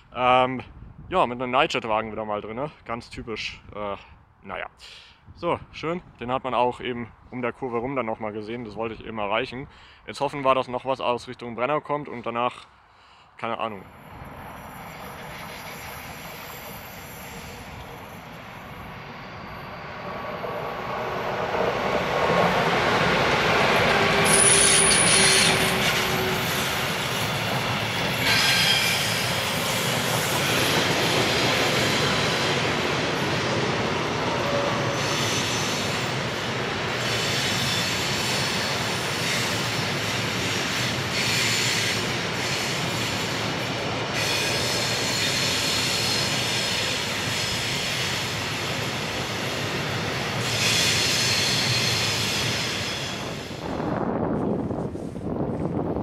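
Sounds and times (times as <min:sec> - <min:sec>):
freight train passing: 0:13.6 - 0:56.0
wheel squeal: 0:18.9 - 0:20.4, 0:24.2 - 0:27.4, 0:28.0 - 0:32.5, 0:34.4 - 0:36.0, 0:37.0 - 0:43.3, 0:44.2 - 0:48.4, 0:50.4 - 0:53.6.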